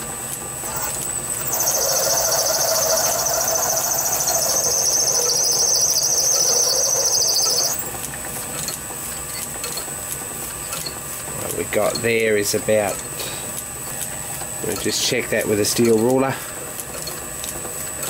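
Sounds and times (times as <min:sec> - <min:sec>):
lathe running quietly: 0:00.0 - 0:18.0
drill squealing cutting brass: 0:00.6 - 0:07.9.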